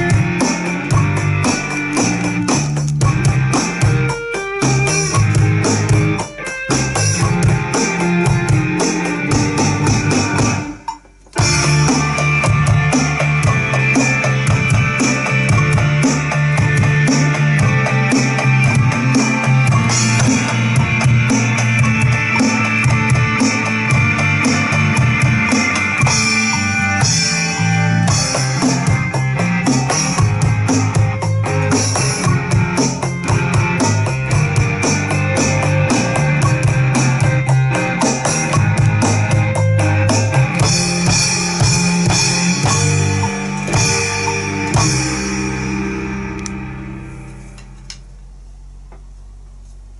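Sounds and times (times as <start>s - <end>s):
rock backing track with guitar: 0.0s - 47.8s
electronic drum kit playing rock: 0.0s - 47.9s.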